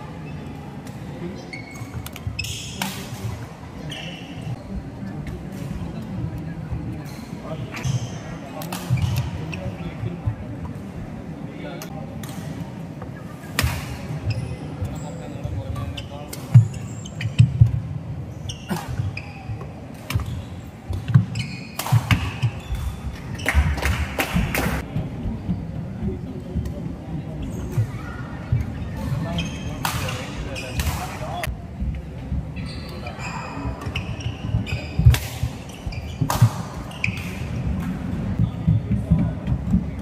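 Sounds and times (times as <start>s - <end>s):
shoe squeaks on court: 1.4s - 2.9s, 18.3s - 23.6s
shoes squeaking: 18.3s - 23.9s, 32.6s - 37.5s.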